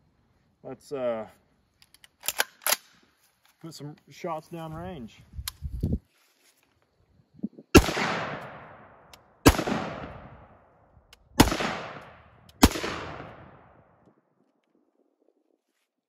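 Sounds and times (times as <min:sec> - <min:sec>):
rifle shots echoing: 0:07.8 - 0:10.7, 0:11.4 - 0:13.9.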